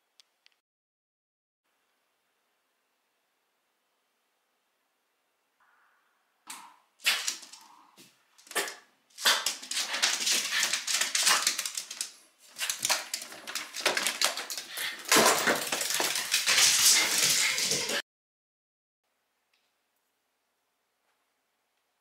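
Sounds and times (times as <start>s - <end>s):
dog claws clicking on wooden floor: 7.0s - 7.6s, 8.4s - 18.0s
dog feet on stairs: 8.4s - 18.0s.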